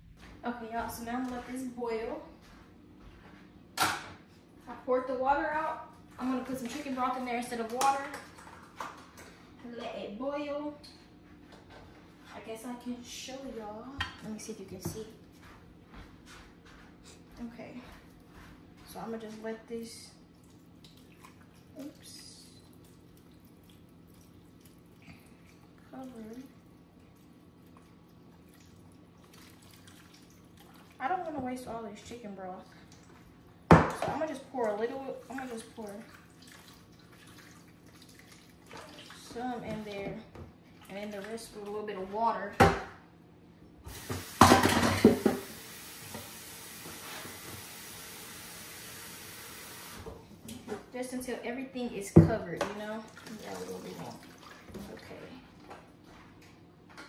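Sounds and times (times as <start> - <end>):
liquid trickling into pot: 20.4 - 31.0.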